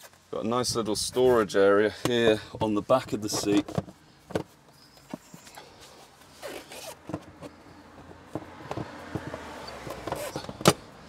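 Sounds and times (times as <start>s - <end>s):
plastic and upholstery rubbing: 2.9s - 10.8s.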